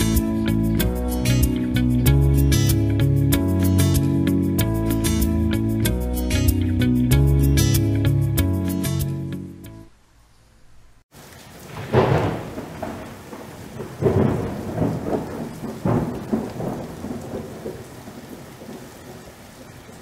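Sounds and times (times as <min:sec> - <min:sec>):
steady rain: 0:11.1 - 0:20.0
thunder rumbling: 0:11.5 - 0:20.0.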